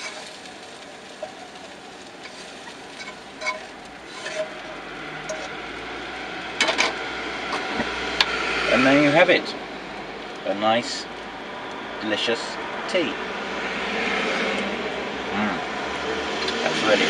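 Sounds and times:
spatula scraping frying pan: 0.0 - 5.7
soft sizzle from pan: 0.0 - 17.0.

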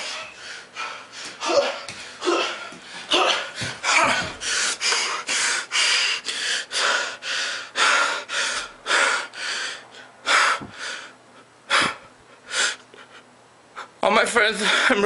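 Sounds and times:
man panting hard: 0.0 - 14.0, 14.6 - 15.0.

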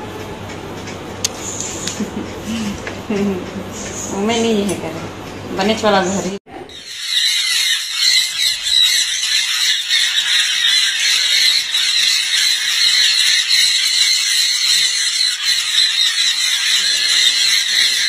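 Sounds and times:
conures screeching: 6.7 - 18.0.

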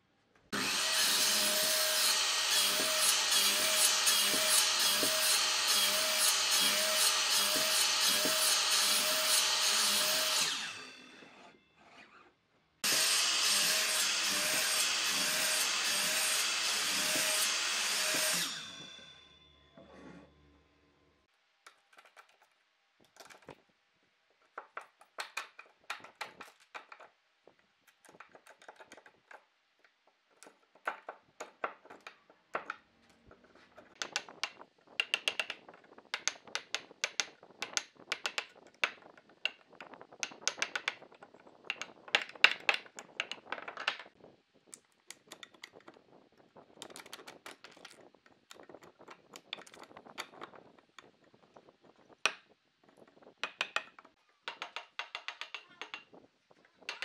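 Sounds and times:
chisel tapping and clicking in wood: 30.3 - 32.8, 33.9 - 39.6, 40.2 - 44.0, 53.4 - 56.1.

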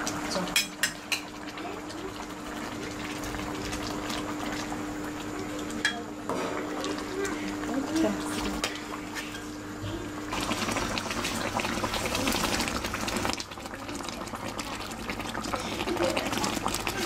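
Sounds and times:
fish sizzling in oil: 6.6 - 17.0.

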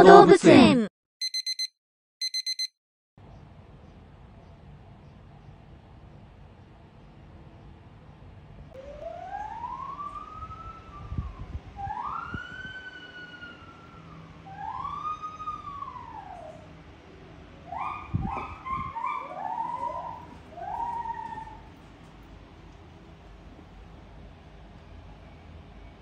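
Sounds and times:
animal whooping calls: 11.8 - 16.7, 17.6 - 21.7.

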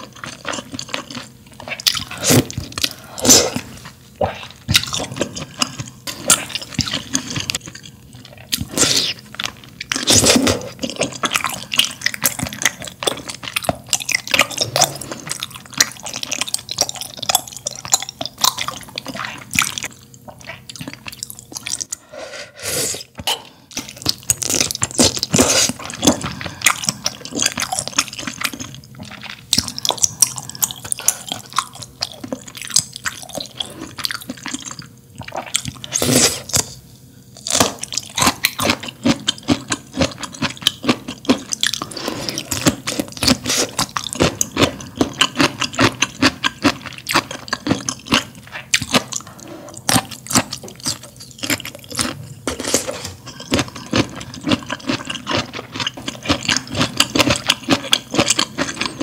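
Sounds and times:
wet chewing mouth sounds: 23.2 - 36.7, 37.5 - 59.0.

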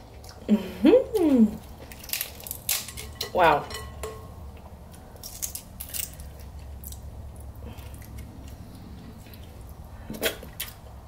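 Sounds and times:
low steady hum: 0.0 - 11.0
fingers cracking crab shell: 1.2 - 3.2, 4.9 - 8.6.

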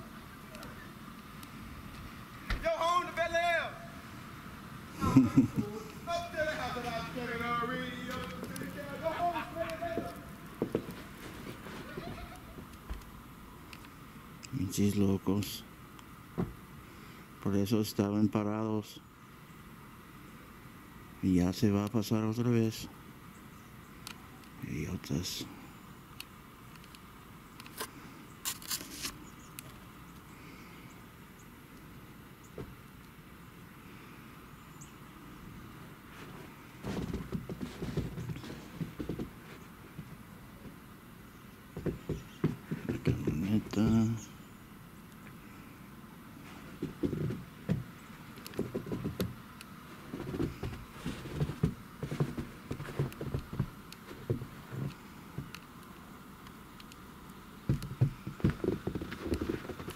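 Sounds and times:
footsteps crunching on snow: 5.8 - 12.6, 36.0 - 40.8, 41.8 - 44.2, 49.8 - 55.5, 57.7 - 59.9
dull thump: 16.4 - 16.6.

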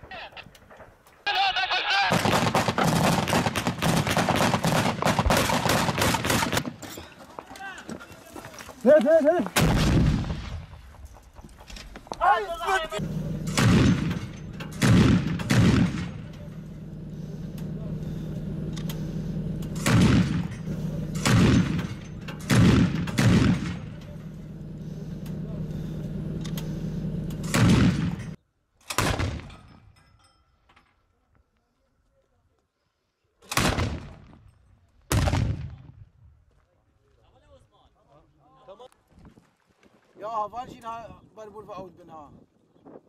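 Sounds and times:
heavy machine gun bursts: 2.0 - 6.9, 12.9 - 29.5
rapid automatic gunfire: 2.1 - 6.6, 22.5 - 24.0
steady low hum: 9.6 - 28.4.

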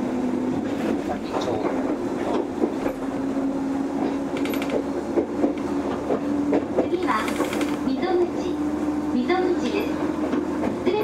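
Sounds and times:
electric train hum: 0.0 - 11.0
train wheels rumbling: 0.0 - 11.0
wheels clicking over rail joints: 4.0 - 8.2.

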